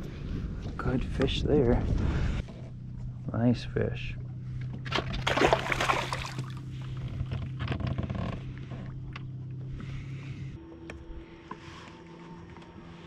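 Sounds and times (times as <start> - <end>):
steady low hum: 0.0 - 13.0
light water sounds: 4.6 - 7.1
fish splashing into water: 4.8 - 6.7.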